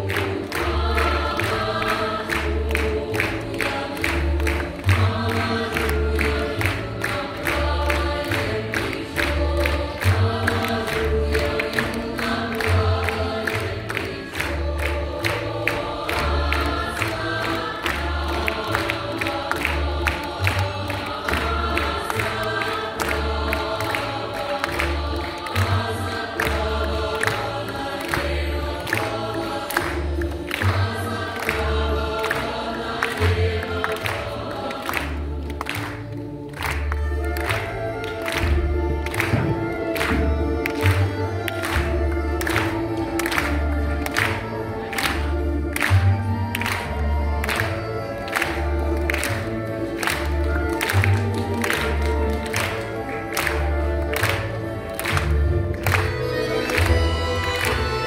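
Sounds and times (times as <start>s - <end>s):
choir singing: 0.0s - 58.0s.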